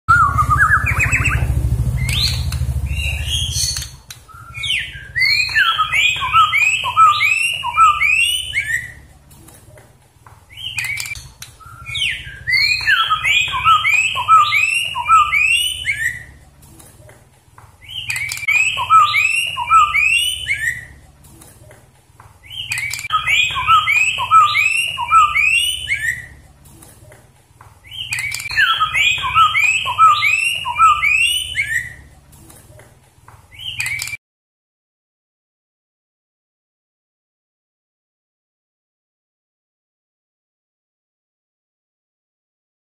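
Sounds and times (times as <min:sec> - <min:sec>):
low rumble: 0:00.1 - 0:03.8
bird singing whistled notes: 0:00.1 - 0:09.1, 0:10.5 - 0:16.4, 0:17.8 - 0:21.0, 0:22.4 - 0:26.5, 0:27.8 - 0:32.1, 0:33.5 - 0:34.2.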